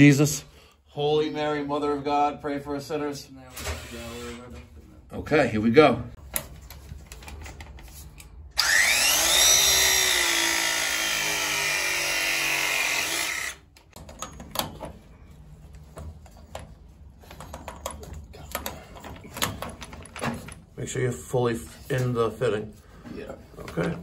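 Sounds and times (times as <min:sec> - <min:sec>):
press tool motor whine: 0:08.6 - 0:13.6.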